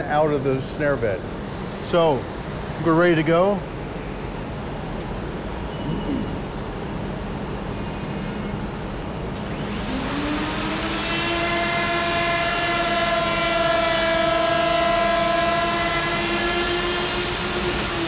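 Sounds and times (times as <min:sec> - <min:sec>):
low machine hum: 0:00.0 - 0:18.0
cutter motor whine: 0:09.4 - 0:18.0.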